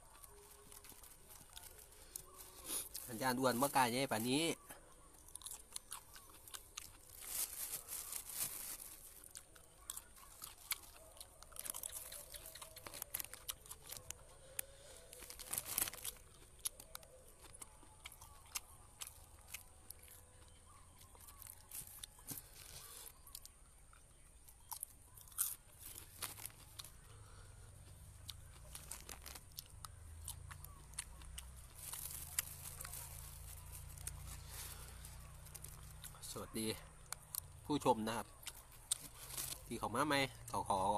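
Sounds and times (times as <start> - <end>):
chewing and crunching food: 0.0 - 40.9
plastic bags rustling: 7.0 - 9.3, 15.1 - 16.3, 25.8 - 26.8, 31.7 - 35.8, 39.0 - 39.7.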